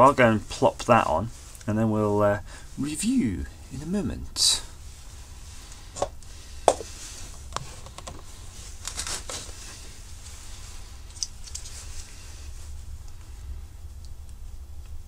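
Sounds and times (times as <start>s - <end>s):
low hum: 0.0s - 15.0s
small objects knocking on wood: 6.0s - 6.9s.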